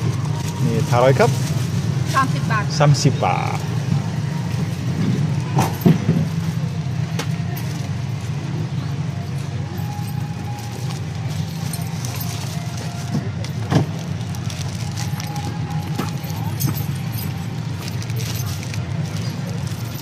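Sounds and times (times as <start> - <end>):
plastic packaging crinkling: 9.9 - 20.0.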